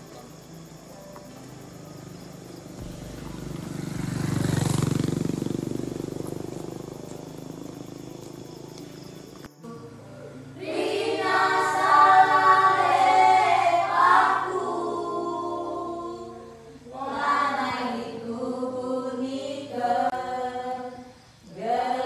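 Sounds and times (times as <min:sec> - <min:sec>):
children singing together: 0:10.6 - 0:22.0.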